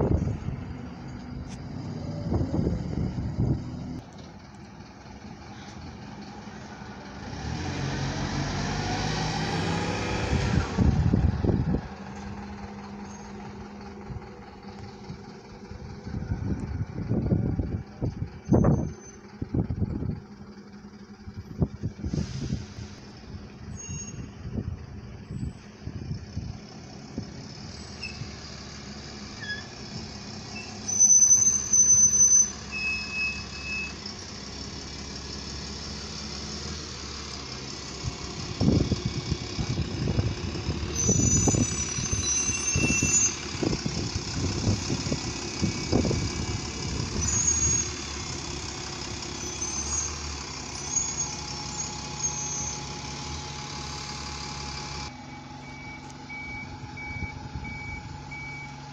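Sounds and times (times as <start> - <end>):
diesel bus running: 0.0 - 58.9
short high squeals: 23.7 - 24.4, 29.4 - 29.9, 30.5 - 34.1, 41.0 - 43.5, 49.3 - 52.9.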